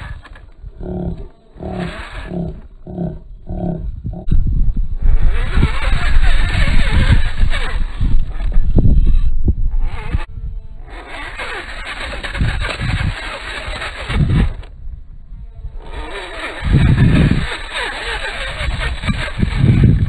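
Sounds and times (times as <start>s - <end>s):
electric motor whining: 0.0s - 4.3s, 5.0s - 14.7s, 15.7s - 20.0s
low thumps: 0.0s - 10.3s.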